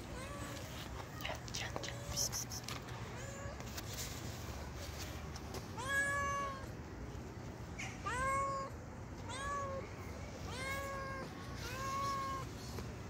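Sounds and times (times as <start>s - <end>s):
cat meowing: 5.8s - 6.7s, 7.8s - 9.8s, 10.5s - 12.5s.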